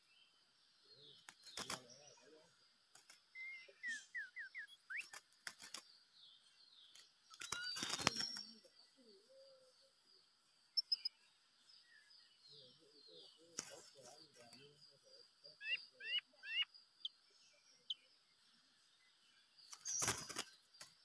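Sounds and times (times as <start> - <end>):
bird chirping: 0.0 - 21.0
high insect hum: 0.0 - 21.0
bird clicks: 1.2 - 1.9, 2.9 - 3.3, 4.9 - 5.9, 6.8 - 8.5, 19.7 - 21.0
wings flapping: 1.2 - 2.0, 2.9 - 3.3, 4.9 - 5.9, 6.9 - 8.5, 13.5 - 14.5, 19.7 - 21.0.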